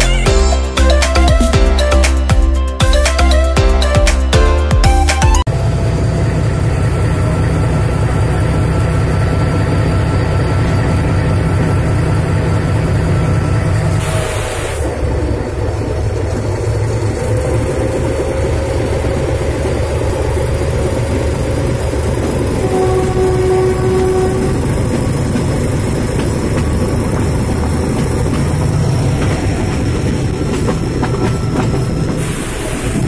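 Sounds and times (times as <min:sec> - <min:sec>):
diesel locomotive engine rumbling: 0:00.0 - 0:33.0
short hiss: 0:14.0 - 0:14.8.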